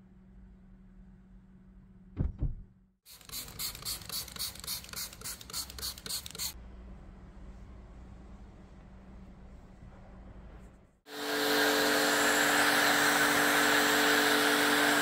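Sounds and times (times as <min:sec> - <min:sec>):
dull thumps: 0:02.2 - 0:02.7.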